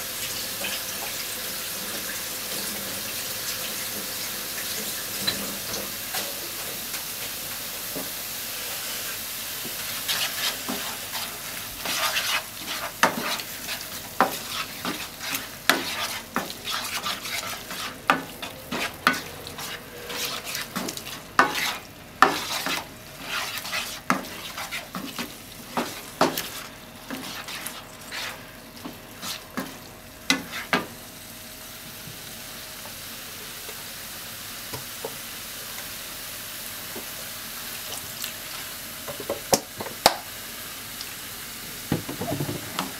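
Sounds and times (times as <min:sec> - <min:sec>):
food sizzling in frying pan: 0:00.0 - 0:42.9
spatula scraping frying pan: 0:09.9 - 0:30.9.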